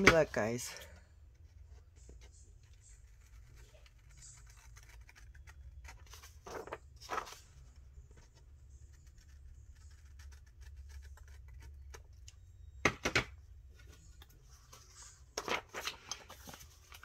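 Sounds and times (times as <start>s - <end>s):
paper rustling and clicking: 3.2s - 12.0s, 14.2s - 17.0s.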